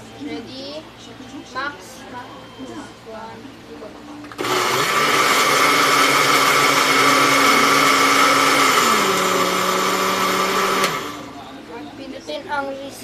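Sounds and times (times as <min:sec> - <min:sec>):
blender motor hum: 0:04.3 - 0:11.3.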